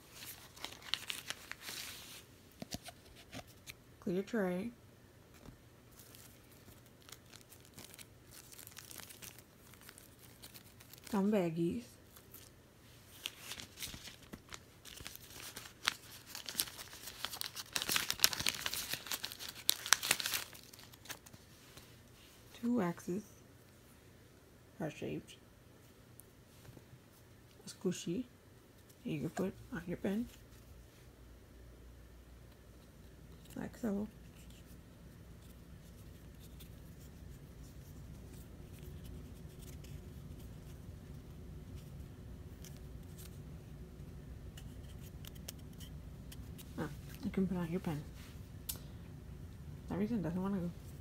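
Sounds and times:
low room hum: 0.0 - 51.0
plastic baggies crinkling: 0.1 - 2.0, 5.9 - 11.2, 13.1 - 21.4.

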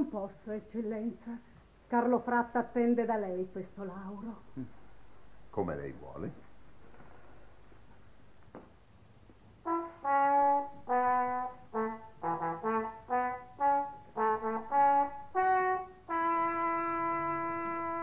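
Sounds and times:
brass fanfare: 9.6 - 18.0.

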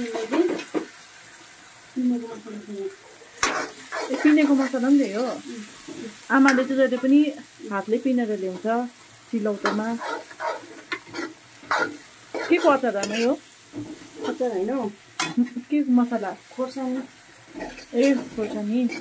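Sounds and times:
vegetables sizzling: 0.0 - 19.0
spoon scraping metal wok: 3.3 - 4.8, 9.6 - 14.4, 17.5 - 19.0.

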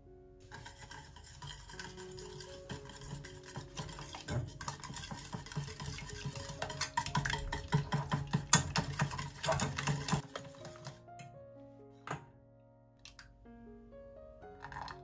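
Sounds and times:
whisk beating in a metal pan: 0.4 - 11.0.

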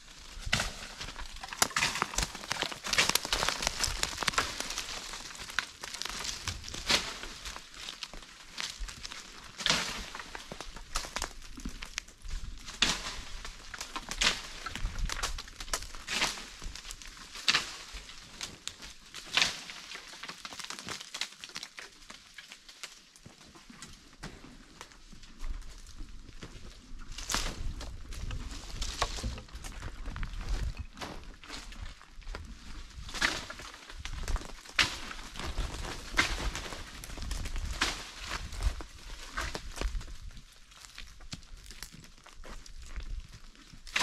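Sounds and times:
crackling and rustling leaves: 0.0 - 44.0
footsteps crunching on dry leaves: 0.6 - 9.1.

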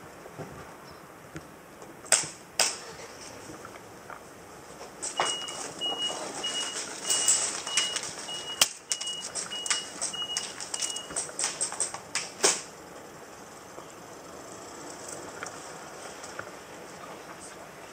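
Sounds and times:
sharp clicks: 2.1 - 2.8, 7.7 - 12.7
short electronic beeps: 5.2 - 11.2.

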